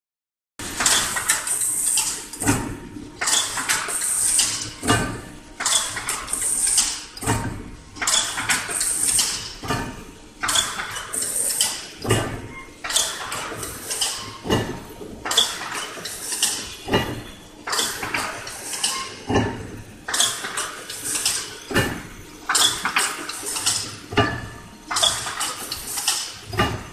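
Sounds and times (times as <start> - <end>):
weaving machine clattering: 24.9 - 26.9.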